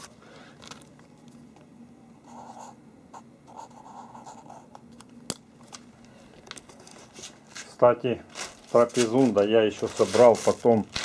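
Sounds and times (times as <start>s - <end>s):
marker scratching on paper: 2.2s - 4.8s.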